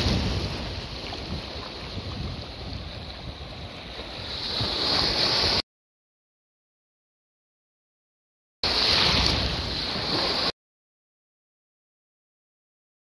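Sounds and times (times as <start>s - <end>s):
sea waves breaking: 0.0s - 5.6s, 8.6s - 10.6s.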